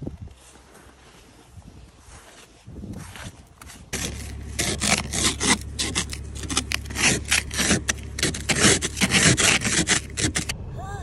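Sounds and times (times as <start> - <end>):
ice scraper scraping windshield: 3.1 - 10.6.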